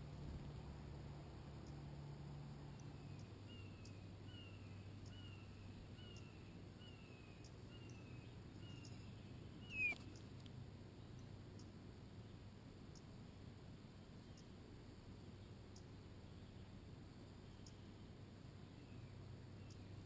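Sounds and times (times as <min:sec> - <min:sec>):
sharp chirp with click: 0:03.1 - 0:10.1
songbird descending call: 0:09.6 - 0:10.0.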